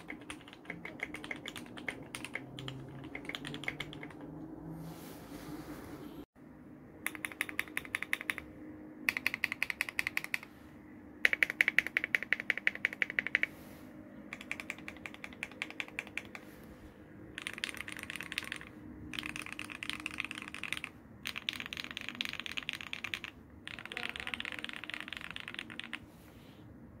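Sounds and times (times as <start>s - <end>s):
mechanical keyboard typing: 0.0s - 4.3s, 7.0s - 8.5s, 9.1s - 10.5s, 11.2s - 13.5s, 14.3s - 16.4s, 17.4s - 26.0s.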